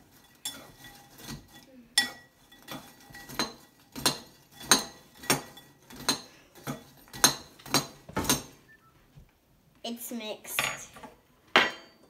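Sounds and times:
metal spoon clinking in bowl: 0:00.2 - 0:08.4.

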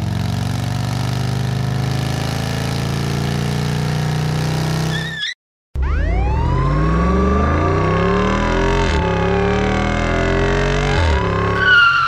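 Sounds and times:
car engine accelerating: 0:00.0 - 0:05.0, 0:05.8 - 0:12.0
police siren wailing: 0:04.9 - 0:12.0.

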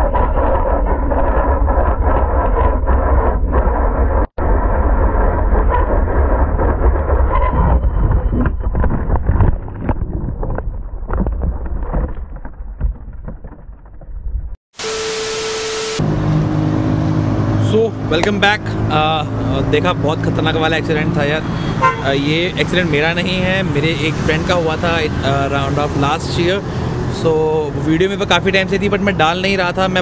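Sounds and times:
heavy wind noise: 0:00.0 - 0:13.0
motorcycle engine: 0:14.8 - 0:27.7.

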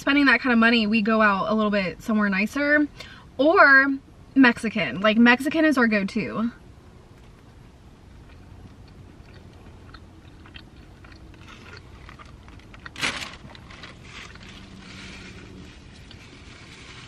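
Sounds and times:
close-up chewing: 0:07.1 - 0:16.8
wet mouth clicks: 0:08.3 - 0:12.0.

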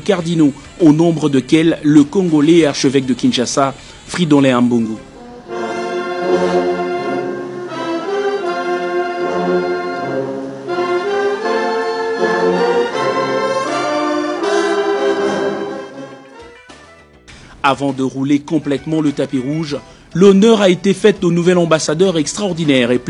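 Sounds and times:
brass band playing slow piece: 0:05.0 - 0:16.5.

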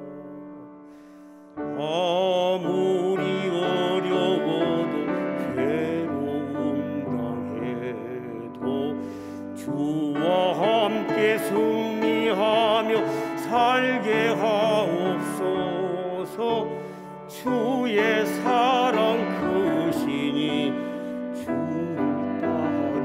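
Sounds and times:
singer breathing: 0:00.7 - 0:01.6, 0:08.9 - 0:09.6, 0:13.0 - 0:13.4, 0:16.7 - 0:17.3, 0:20.8 - 0:21.4
man singing a hymn with vibrato: 0:01.6 - 0:23.0.

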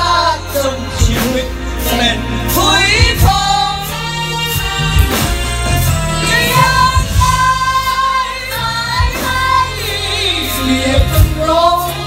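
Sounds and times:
choir singing: 0:00.0 - 0:12.0
steady bass: 0:00.0 - 0:12.0
drum hits: 0:04.5 - 0:08.0.

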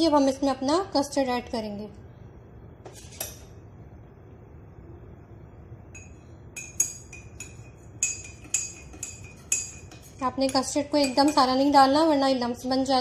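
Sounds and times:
spoon clinking against a cup: 0:06.0 - 0:11.8.

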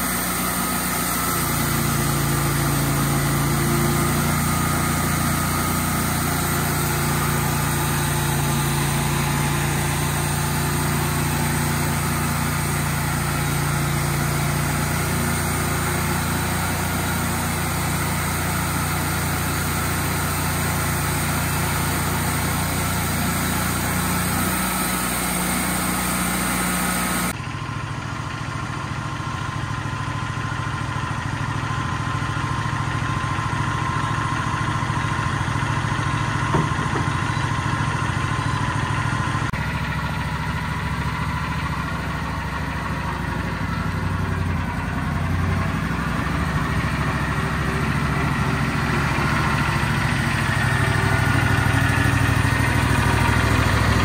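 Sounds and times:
band blade sawing log: 0:00.0 - 0:27.4
sawmill engine humming: 0:00.0 - 0:54.0.

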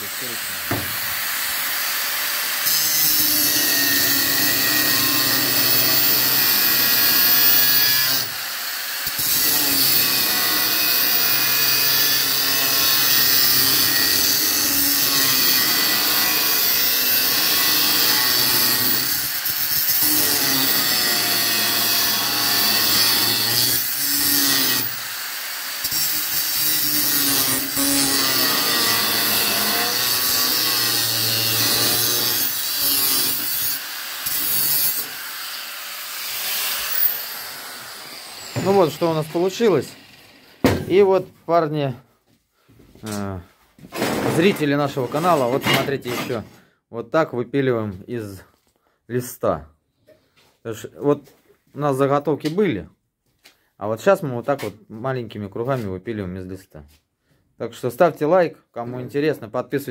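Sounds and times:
angle grinder cutting steel: 0:00.0 - 0:40.6.

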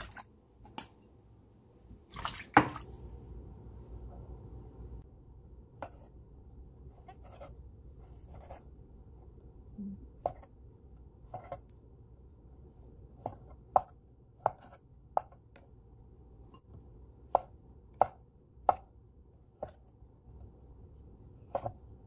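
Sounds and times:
knife chopping on wooden board: 0:13.2 - 0:15.6, 0:17.3 - 0:18.9, 0:21.4 - 0:21.9.

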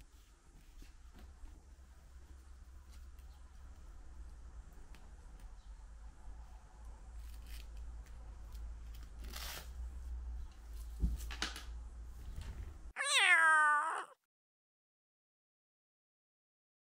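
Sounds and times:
cat meowing: 0:13.0 - 0:14.2.

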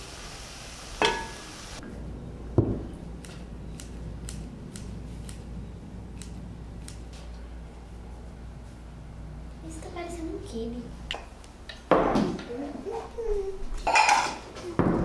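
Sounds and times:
meat sizzling in a pan: 0:00.0 - 0:01.8
scissors snipping: 0:03.2 - 0:05.5, 0:06.2 - 0:07.1.

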